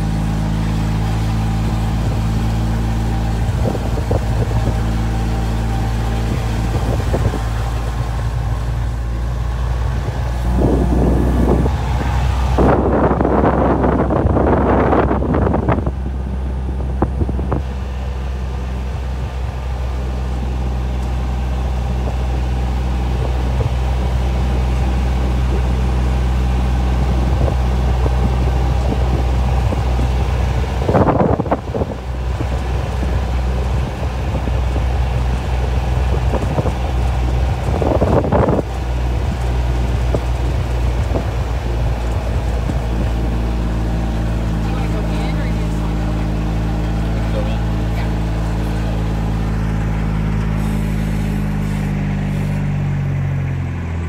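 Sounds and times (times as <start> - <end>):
wind noise on microphone: 0.0 - 53.1
vehicle engine running: 0.0 - 54.0.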